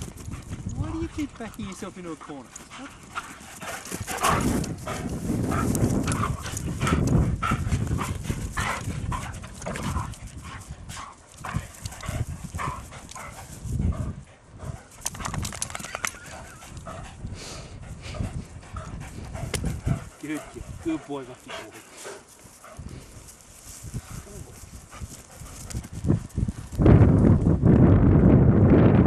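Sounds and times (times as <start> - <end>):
clatter of paws and claws: 0.0 - 13.7, 14.8 - 17.1, 19.1 - 26.8
dogs barking and yapping: 0.0 - 23.0.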